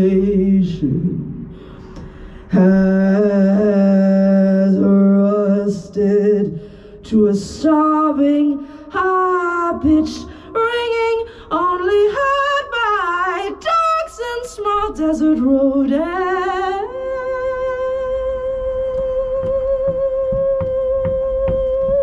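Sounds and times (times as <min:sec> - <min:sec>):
woman singing unaccompanied: 0:09.0 - 0:22.0.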